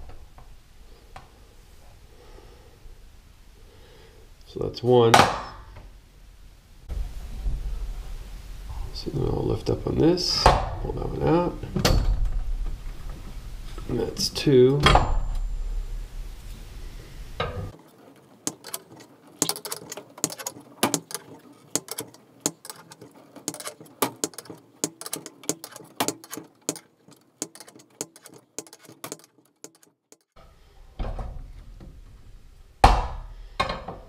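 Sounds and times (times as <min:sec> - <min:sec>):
low rumbling noise: 0:15.0 - 0:17.4
steel bars clinking in spring cone: 0:18.5 - 0:30.2.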